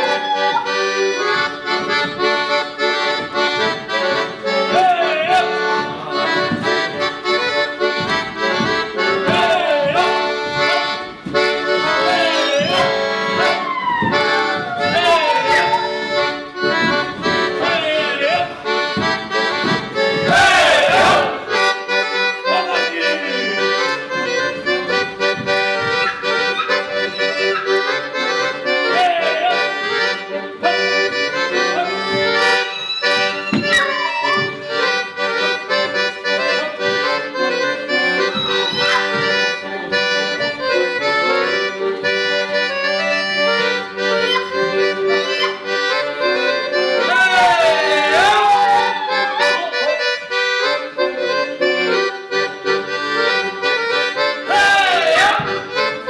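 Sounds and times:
dancers shouting: 0:00.0 - 0:01.1, 0:11.9 - 0:18.6, 0:20.0 - 0:21.5, 0:25.8 - 0:29.8, 0:31.7 - 0:34.8, 0:38.0 - 0:39.9, 0:47.0 - 0:50.2, 0:54.4 - 0:55.7
folk dance music with accordion: 0:00.0 - 0:56.0.

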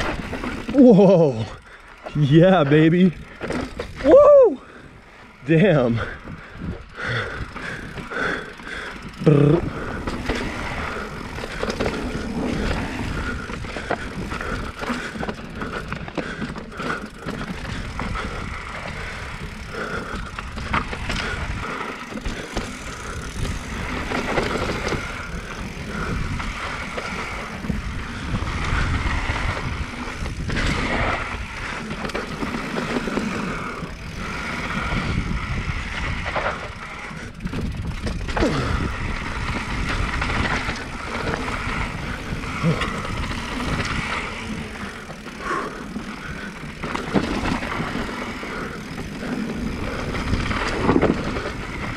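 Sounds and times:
bike tyres rattling over rock: 0:00.0 - 0:51.9.

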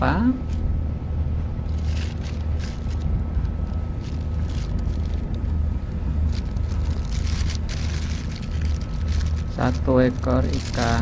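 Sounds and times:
plastic bag crinkling: 0:01.6 - 0:05.6, 0:06.2 - 0:11.0.

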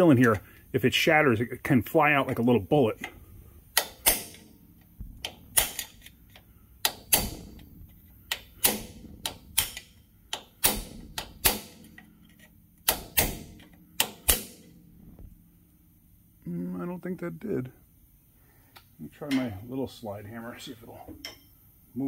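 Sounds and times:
hammer striking chisel on metal: 0:03.7 - 0:04.5, 0:05.2 - 0:07.6, 0:08.3 - 0:14.7.

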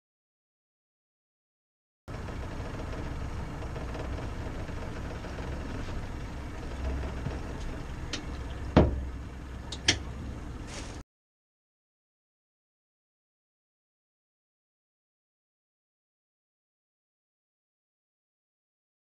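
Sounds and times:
outboard motors idling: 0:02.1 - 0:11.0
sharp knocks: 0:08.1 - 0:09.0.

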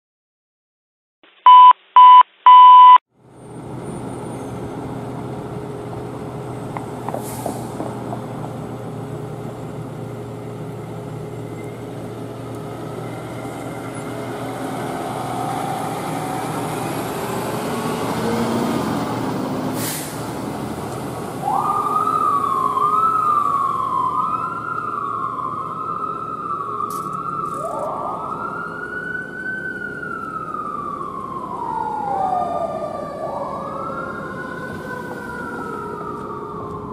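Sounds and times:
loud beeps: 0:01.4 - 0:03.0
fire truck diesel engine: 0:03.1 - 0:36.9
wailing siren: 0:11.6 - 0:19.8, 0:21.2 - 0:36.9
warbling siren: 0:12.9 - 0:19.2, 0:21.3 - 0:36.9.

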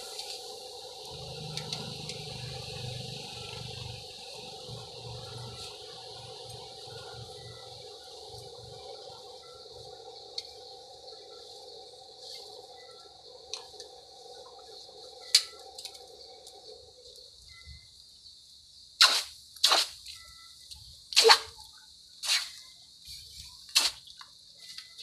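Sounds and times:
hot steel hissing in water: 0:00.0 - 0:06.7
faint high hiss: 0:00.0 - 0:08.4.

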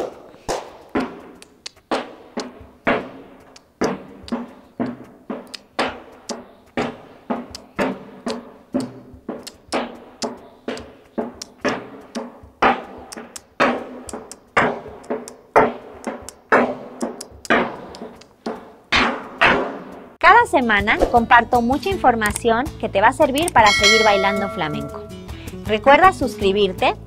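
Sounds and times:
flamenco percussive strikes: 0:07.5 - 0:20.2, 0:23.5 - 0:25.6.

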